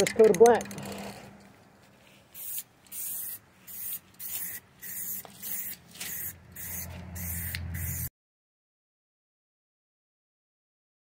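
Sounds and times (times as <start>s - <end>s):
spray paint can hissing bursts: 2.3s - 8.1s.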